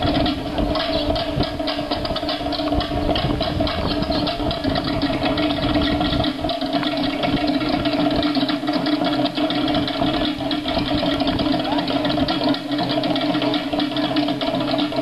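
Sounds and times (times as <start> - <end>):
fast drumming: 0.0 - 15.0.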